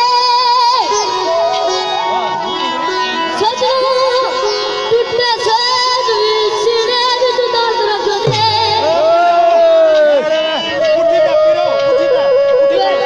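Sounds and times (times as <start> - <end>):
boy singing through microphone: 0.0 - 2.0, 3.1 - 13.0
hand drum striking: 8.2 - 9.7.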